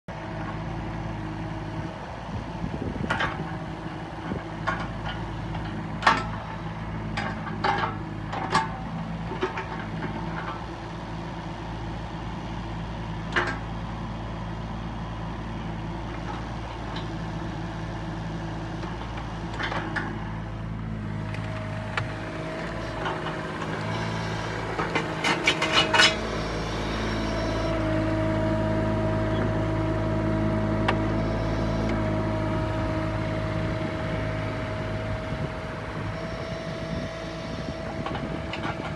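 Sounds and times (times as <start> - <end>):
excavator diesel engine running: 0.1 - 38.9
higher hydraulic whine: 22.6 - 29.6, 30.9 - 38.9
metallic clanks and knocks: 24.8 - 26.2.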